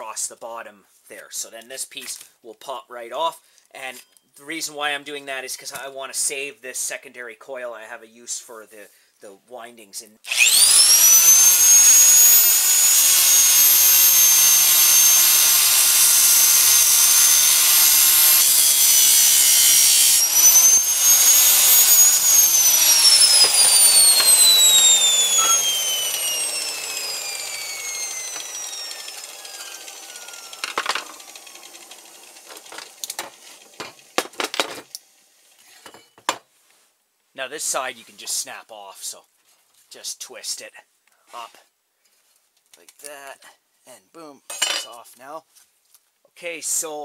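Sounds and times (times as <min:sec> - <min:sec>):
angle grinder cutting steel: 0:10.3 - 0:34.9.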